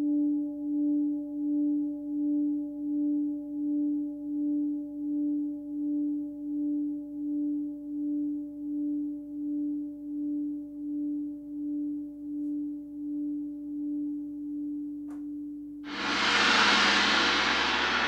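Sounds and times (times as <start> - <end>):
loud gong wash: 15.9 - 18.0.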